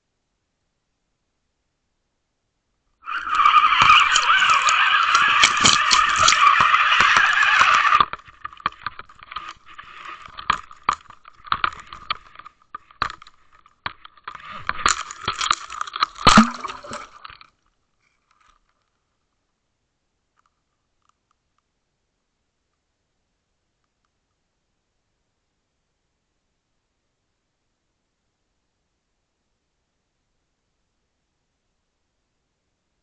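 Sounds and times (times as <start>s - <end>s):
scraping on camera housing: 3.1s - 19.0s.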